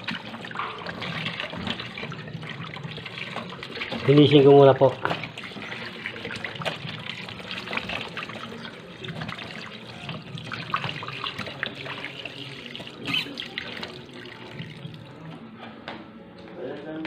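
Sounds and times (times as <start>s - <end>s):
tap water splashing into bowl: 3.0s - 15.4s.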